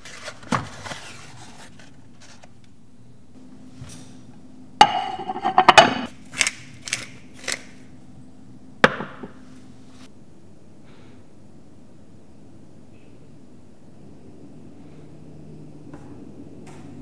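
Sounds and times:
hard objects knocking: 0:04.8 - 0:06.1, 0:08.8 - 0:09.4.

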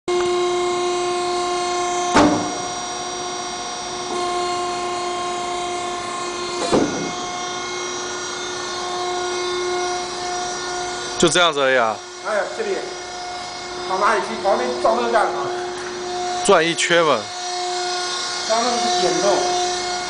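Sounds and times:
hydraulic power unit whine: 0:00.1 - 0:20.0
machine clunks: 0:02.1 - 0:02.7.

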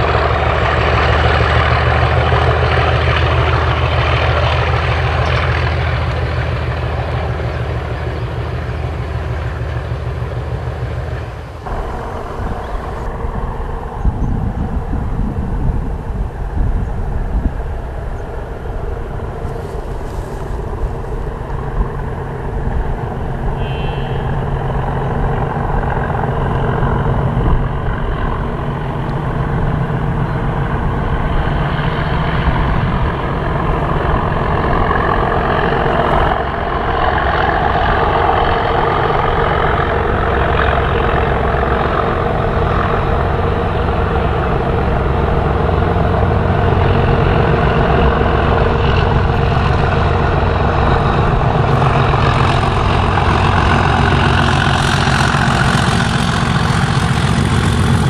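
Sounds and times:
diesel locomotive engines running: 0:00.0 - 0:58.0.

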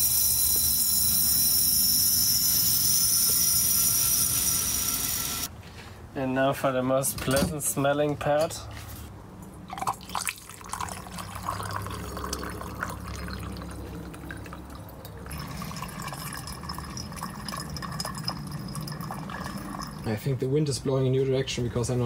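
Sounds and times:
liquid pouring into glass flask: 0:09.7 - 0:20.1.

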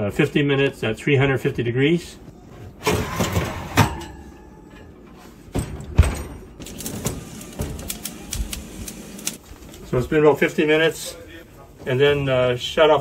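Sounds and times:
oven shelf and pan clattering: 0:02.8 - 0:07.8.

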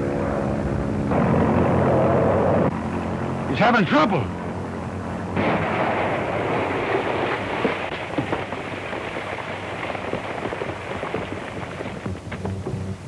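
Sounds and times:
airplane crash sound effect: 0:05.4 - 0:08.6.

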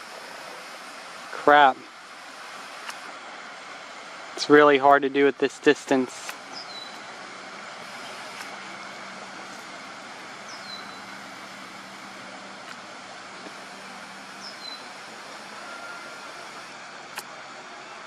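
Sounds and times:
distant traffic noise: 0:00.0 - 0:18.0
bird whistling: 0:06.6 - 0:07.0, 0:10.5 - 0:11.1, 0:14.4 - 0:14.9.

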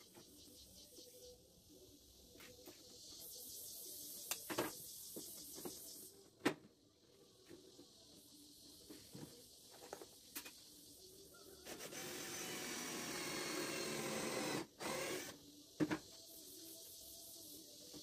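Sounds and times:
cordless drill driving screw: 0:11.7 - 0:15.4.

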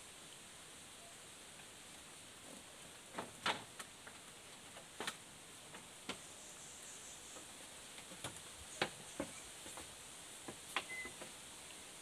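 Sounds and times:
high insect hiss: 0:05.4 - 0:12.0.

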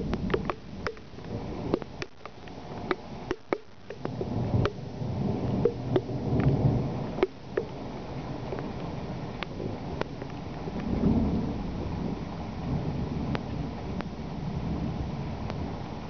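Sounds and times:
raindrops ticking on a surface: 0:00.0 - 0:16.0
thunder rumbling: 0:00.0 - 0:16.0.

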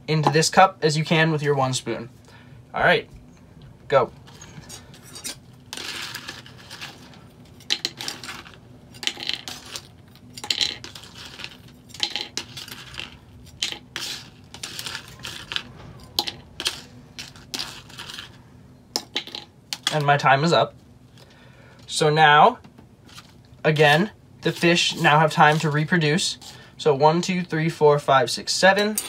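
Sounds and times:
crackers clattering into cup: 0:04.3 - 0:18.4, 0:19.0 - 0:20.0
plastic spoon scraping crackers: 0:04.6 - 0:18.4.

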